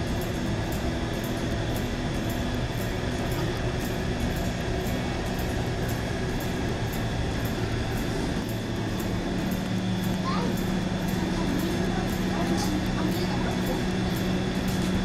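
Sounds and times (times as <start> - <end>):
machinery drone: 0.0 - 15.0.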